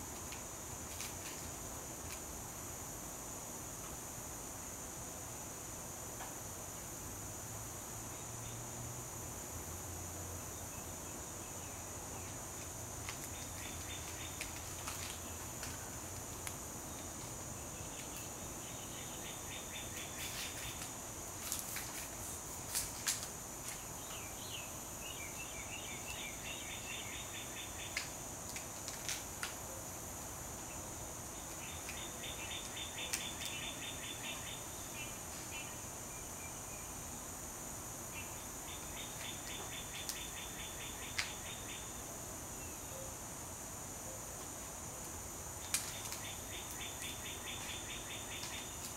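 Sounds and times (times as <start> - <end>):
high-pitched insect hum: 0.0 - 48.9.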